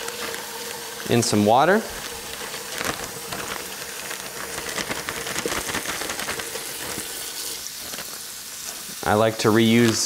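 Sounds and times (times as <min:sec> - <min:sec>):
faucet running into bowl: 0:00.0 - 0:04.6.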